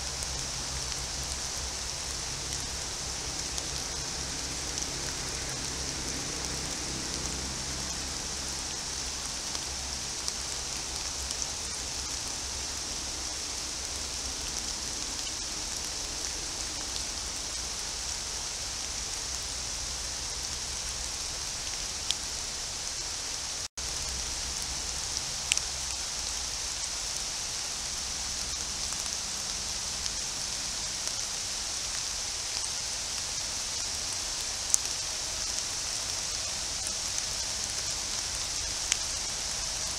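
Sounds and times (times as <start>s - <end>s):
rain falling on foliage: 0.0s - 39.9s.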